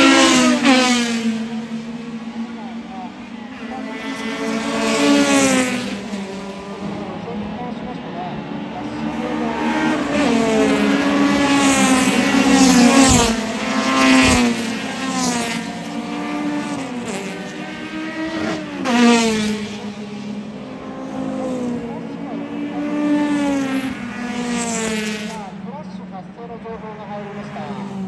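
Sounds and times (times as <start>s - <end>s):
race cars accelerating past: 0.0s - 28.0s.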